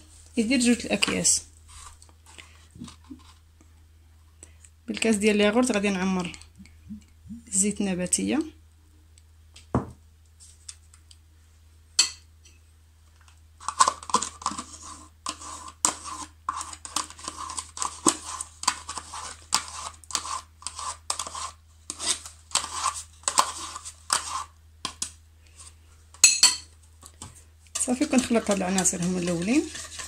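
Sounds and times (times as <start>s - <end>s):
teaspoon scraping plastic cup: 0.4s - 3.4s, 13.6s - 25.7s, 27.0s - 30.0s.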